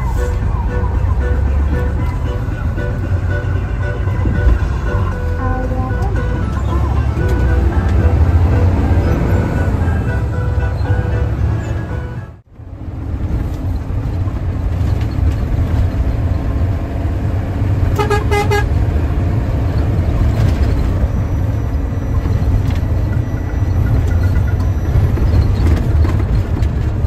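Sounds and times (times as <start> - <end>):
bus engine rumble: 0.0 - 27.0
horn short blasts: 18.0 - 18.8.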